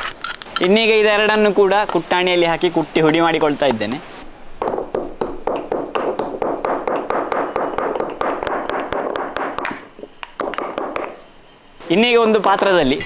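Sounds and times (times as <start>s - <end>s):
stone pestle pounding in mortar: 4.6s - 11.2s.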